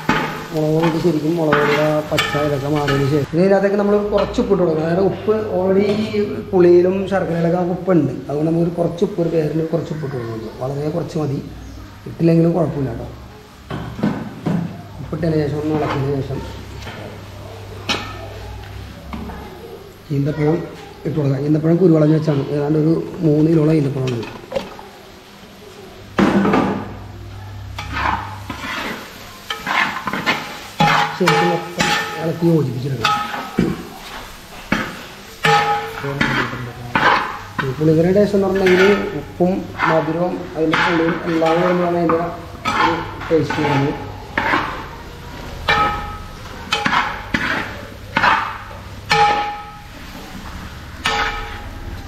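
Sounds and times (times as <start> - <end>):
food sizzling: 0.0 - 52.0
spoon scraping pot: 27.7 - 51.9.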